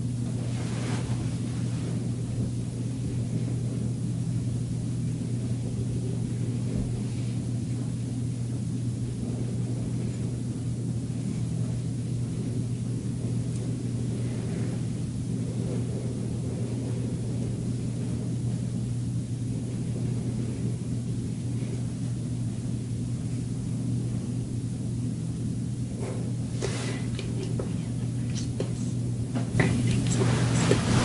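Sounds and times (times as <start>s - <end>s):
low hum and rumble: 0.0s - 31.0s
faint rustle: 0.2s - 3.6s, 26.1s - 31.0s.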